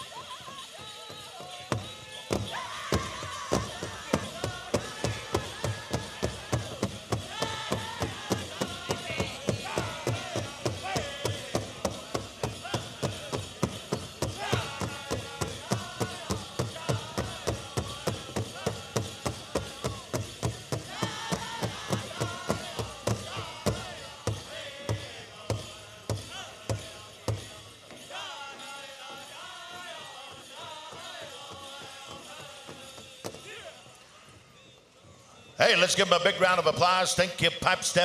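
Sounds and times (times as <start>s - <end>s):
singers' voices: 0.0s - 38.0s
large drum steady beat: 2.4s - 27.3s.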